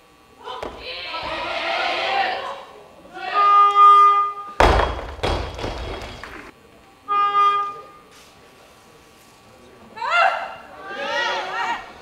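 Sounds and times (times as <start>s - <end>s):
barbell crashing onto wooden platform: 4.6s - 6.5s.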